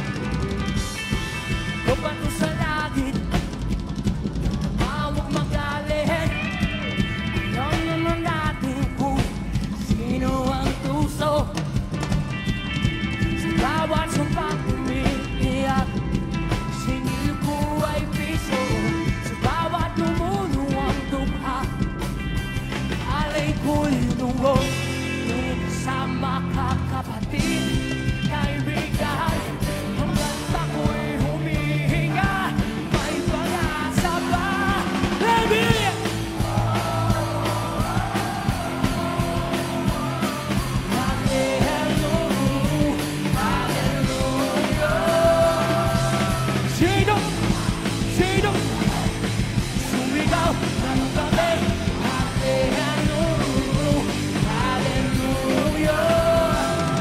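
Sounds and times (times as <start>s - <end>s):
drums: 0.0s - 57.0s
electric guitar: 0.0s - 57.0s
man singing: 1.4s - 22.0s, 22.9s - 57.0s.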